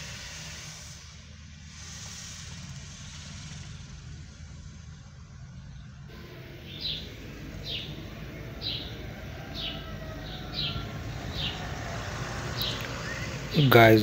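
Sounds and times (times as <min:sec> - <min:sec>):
car interior rumble: 0:01.4 - 0:14.0
bird chirping: 0:05.5 - 0:14.0.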